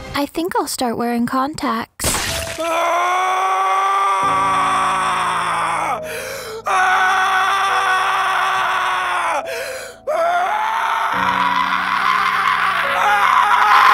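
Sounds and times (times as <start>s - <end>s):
man screaming: 2.4s - 13.9s
man breathing: 6.0s - 6.7s, 9.4s - 10.1s.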